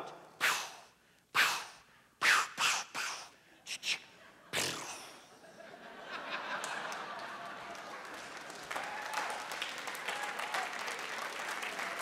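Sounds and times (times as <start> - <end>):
audience laughter: 5.4 - 8.1
audience applause: 6.5 - 12.0.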